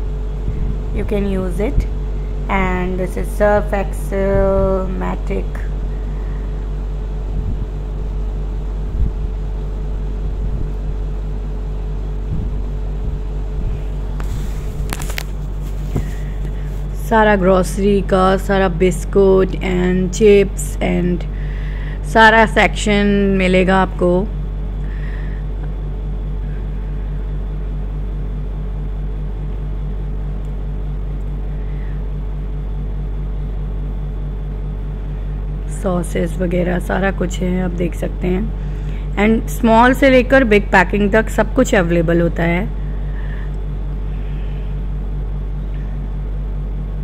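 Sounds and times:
low room hum: 0.0s - 47.0s.

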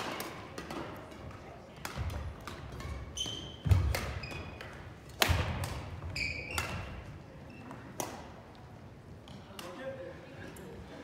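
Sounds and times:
shoe squeaks on court floor: 3.0s - 4.6s, 6.1s - 7.9s.

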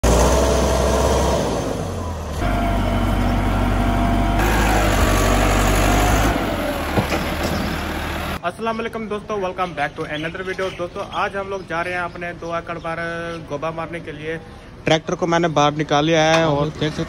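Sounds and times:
tractor diesel engine under load: 0.0s - 8.4s.

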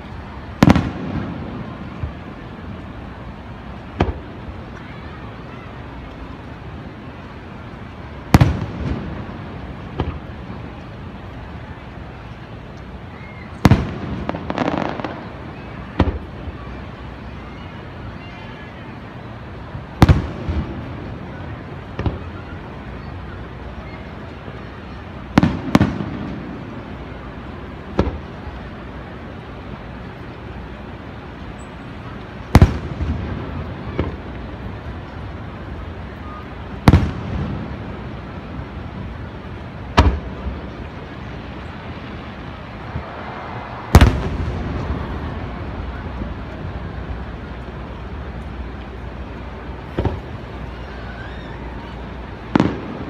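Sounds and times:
firework shells booming: 0.6s - 2.3s, 8.3s - 10.3s, 13.6s - 16.2s, 20.0s - 21.1s, 32.5s - 34.3s, 36.7s - 38.6s, 39.9s - 40.8s, 43.8s - 46.5s, 49.9s - 50.3s, 52.5s - 53.0s.

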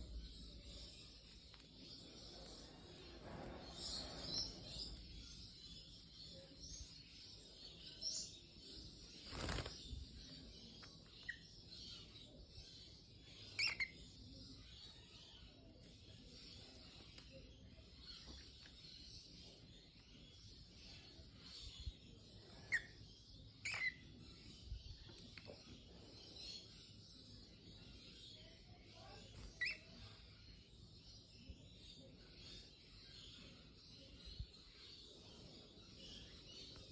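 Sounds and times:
cockatiels chirping: 13.5s - 14.0s, 23.6s - 24.0s, 29.4s - 29.9s.

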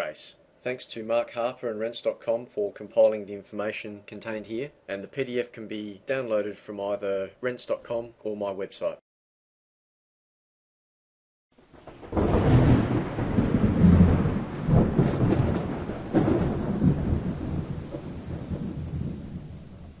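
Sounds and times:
sharp thunder clap: 11.8s - 20.0s
thunder rumbling: 11.8s - 20.0s.

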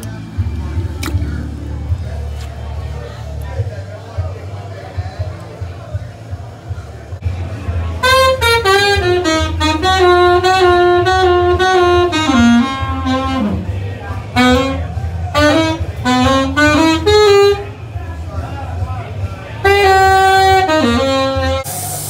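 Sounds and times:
jazz saxophone melody: 8.0s - 17.9s, 19.6s - 21.8s.

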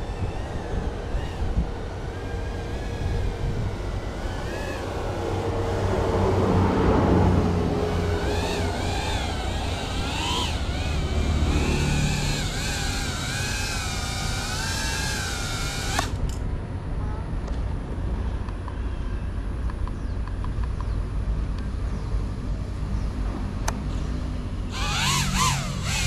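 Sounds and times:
quadcopter motors whining: 0.0s - 16.5s, 23.8s - 26.0s.

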